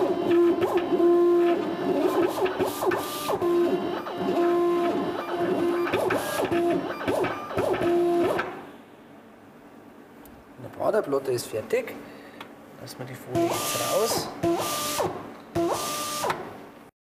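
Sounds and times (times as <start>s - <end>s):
cutting plotter motors whining: 0.0s - 8.6s, 13.3s - 16.5s.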